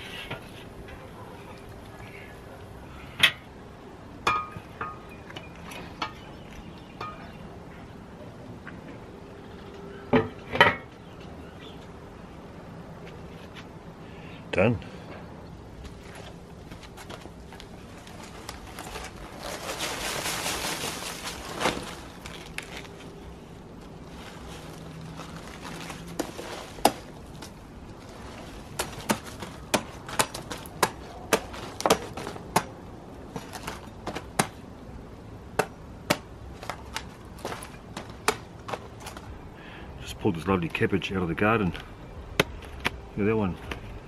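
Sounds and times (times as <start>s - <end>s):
cabbage leaves rustling: 16.0s - 32.6s.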